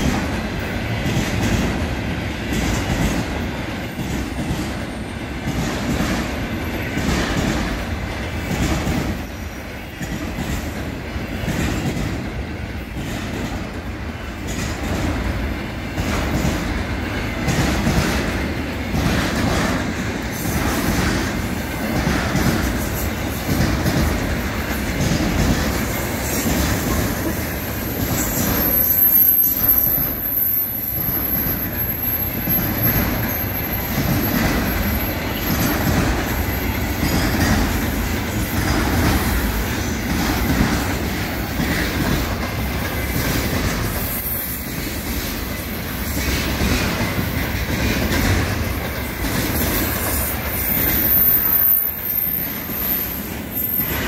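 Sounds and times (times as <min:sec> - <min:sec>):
freight train wheels rumbling: 0:00.0 - 0:54.0
high wheel squeal: 0:27.6 - 0:37.5, 0:49.6 - 0:54.0.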